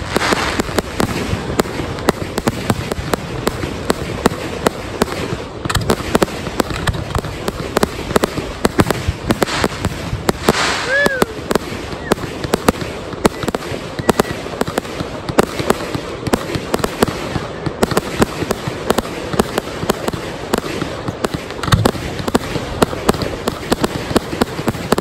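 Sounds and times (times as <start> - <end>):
fireworks bursting: 0.0 - 25.0.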